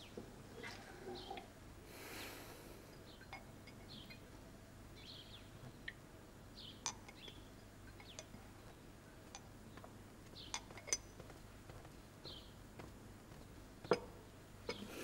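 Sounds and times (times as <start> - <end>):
porcelain teacups clinking: 3.0 - 4.2, 6.8 - 8.4, 10.5 - 11.3, 13.9 - 14.1.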